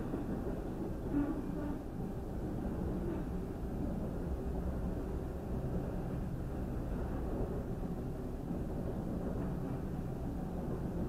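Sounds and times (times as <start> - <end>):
freight train rumbling: 0.0 - 11.0.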